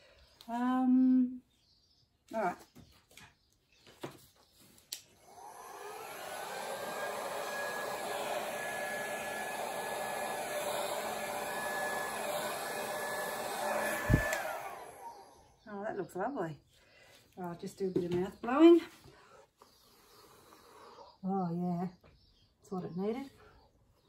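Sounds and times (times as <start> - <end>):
hair dryer whining: 5.2 - 15.6.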